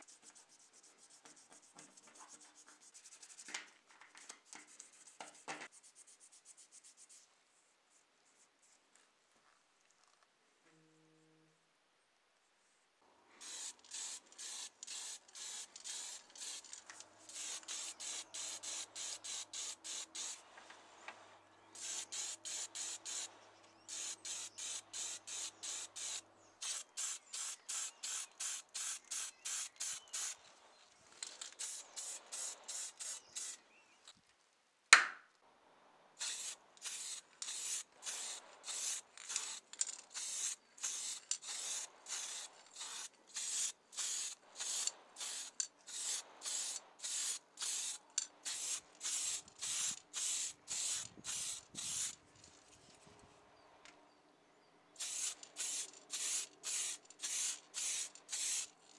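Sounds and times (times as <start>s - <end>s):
spray paint hissing in spurts: 13.4s - 20.5s, 21.8s - 30.4s, 31.3s - 33.6s, 36.2s - 52.2s, 55.0s - 58.8s.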